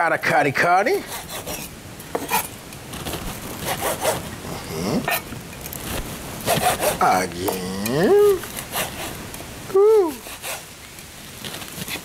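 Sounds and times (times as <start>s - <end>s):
knife sawing sausages: 1.0s - 2.5s, 3.4s - 5.3s, 6.4s - 9.2s, 10.1s - 10.7s.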